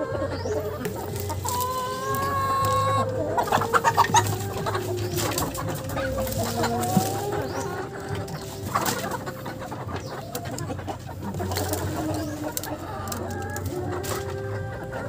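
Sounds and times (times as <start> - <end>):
chickens clucking: 0.0 - 15.0
long drawn-out hen call: 1.6 - 10.4.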